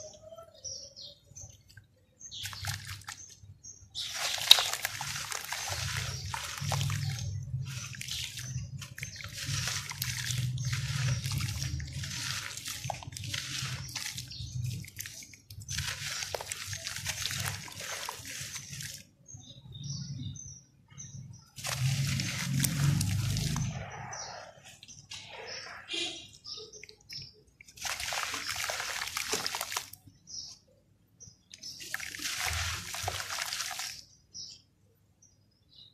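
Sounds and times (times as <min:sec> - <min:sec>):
water sloshing and splashing: 0:01.4 - 0:20.3, 0:21.2 - 0:30.6, 0:31.4 - 0:34.6
dirt crumbling into water: 0:01.6 - 0:19.2, 0:21.6 - 0:24.0, 0:26.8 - 0:30.5, 0:31.4 - 0:34.4.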